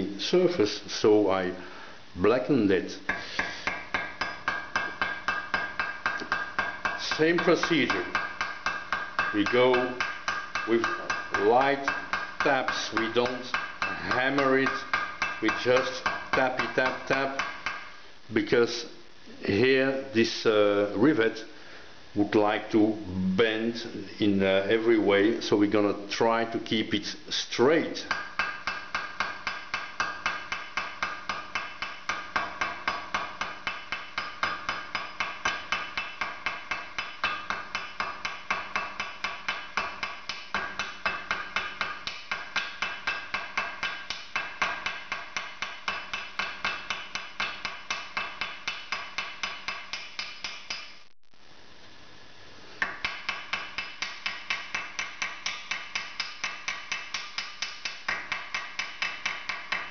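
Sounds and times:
small hammer tapping metal: 3.1s - 17.9s, 27.9s - 51.0s, 52.8s - 59.9s.

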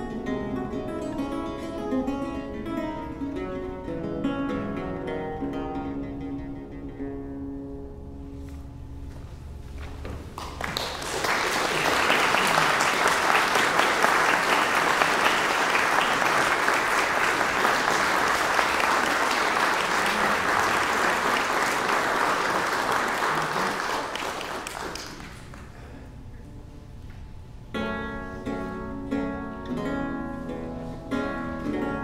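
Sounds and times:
audience applauding: 10.4s - 25.9s.

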